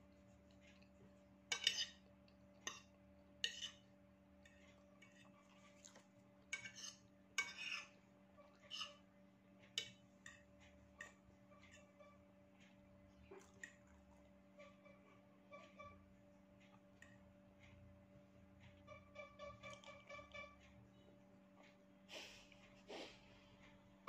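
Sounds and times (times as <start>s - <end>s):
faint steady hum: 0.0s - 24.0s
fork scraping ceramic plate: 1.5s - 9.0s, 11.0s - 12.2s.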